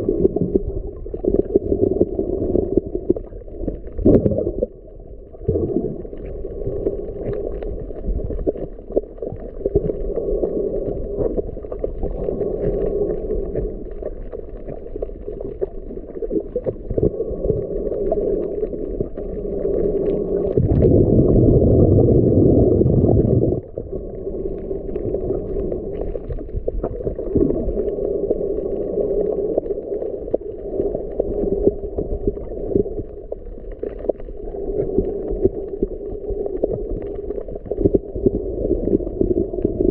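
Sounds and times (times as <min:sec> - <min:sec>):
underwater water rumble: 0:00.0 - 0:39.9
water rushing: 0:14.6 - 0:39.9.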